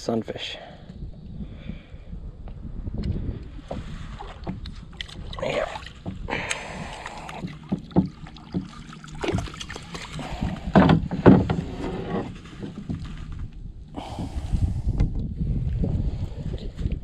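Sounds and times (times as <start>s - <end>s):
water splashing: 3.6s - 11.6s
knocks against kayak hull: 5.9s - 13.1s.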